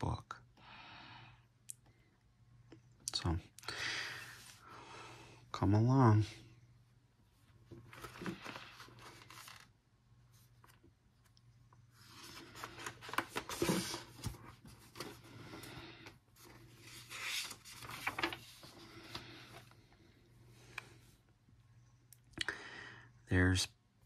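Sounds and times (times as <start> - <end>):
paper pages rustling: 7.7 - 9.8, 12.0 - 15.7, 16.4 - 19.8.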